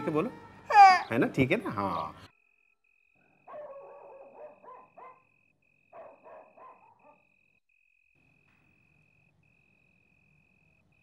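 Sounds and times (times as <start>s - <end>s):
dog barking: 3.2s - 7.3s.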